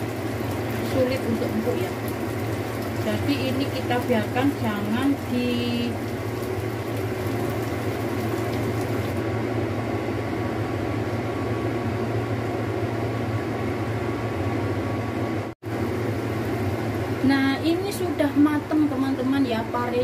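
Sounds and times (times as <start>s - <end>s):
food simmering in sauce: 0.0s - 9.2s
kitchen fan humming: 0.0s - 20.0s.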